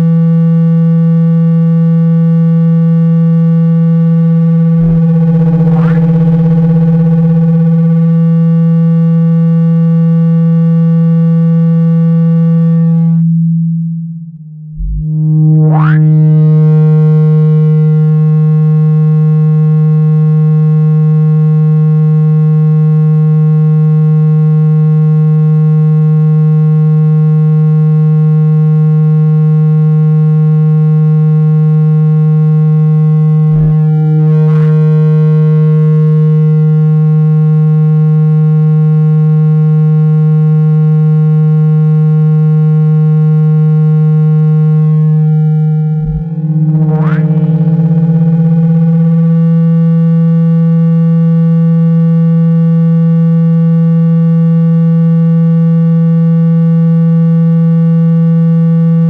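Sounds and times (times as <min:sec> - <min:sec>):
loud low buzzy tone: 0:00.0 - 0:59.0
rising tone sweep: 0:04.5 - 0:08.1, 0:14.6 - 0:18.0, 0:33.3 - 0:35.6, 0:44.6 - 0:49.1.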